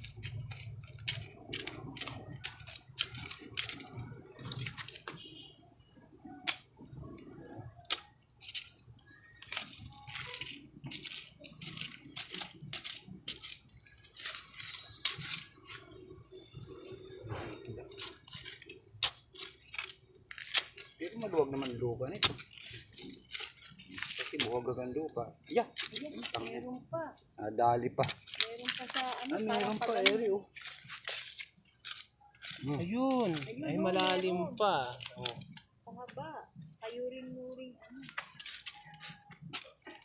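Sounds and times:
hand tool scraping soil: 0.0s - 5.3s, 7.9s - 8.8s, 9.4s - 16.0s, 17.5s - 24.7s, 25.7s - 26.7s, 28.0s - 35.7s, 38.0s - 40.0s.

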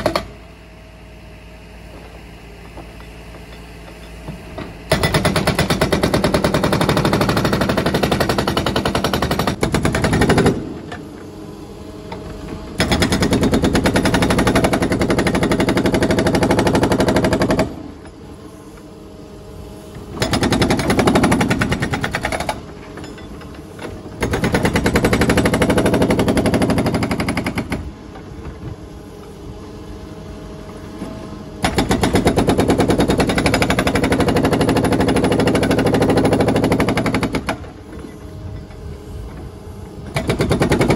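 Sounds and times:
hydraulic hammer breaking concrete: 4.9s - 11.0s, 12.8s - 18.0s, 20.2s - 27.9s, 31.6s - 37.8s, 40.1s - 40.9s.

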